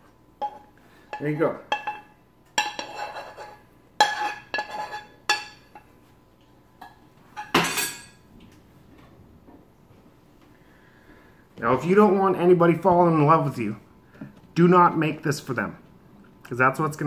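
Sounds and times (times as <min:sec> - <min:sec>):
metal spoon scraping a pan: 0:00.4 - 0:05.9.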